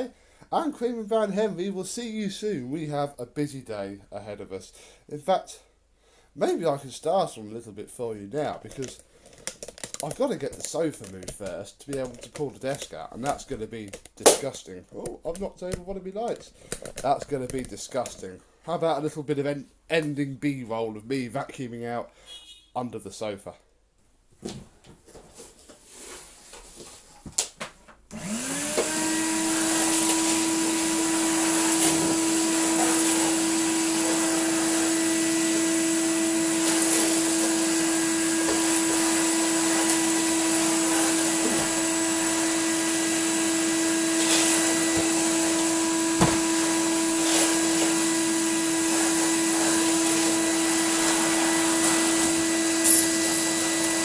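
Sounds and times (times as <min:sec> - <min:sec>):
floor tool on laminate floor: 0:28.1 - 0:54.0
vacuum cleaner motor whine: 0:28.1 - 0:54.0.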